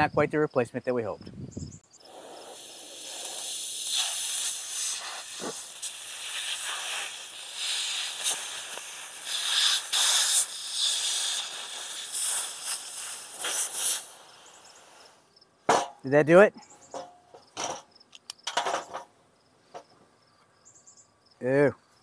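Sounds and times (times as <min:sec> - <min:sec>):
laser burning wood hiss: 0:02.0 - 0:15.3.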